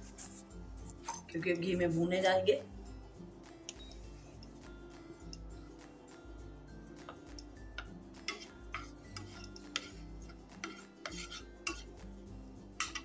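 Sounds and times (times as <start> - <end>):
soft background music: 0.0 - 13.0
spoon scraping a pan: 7.8 - 12.0, 12.7 - 13.0.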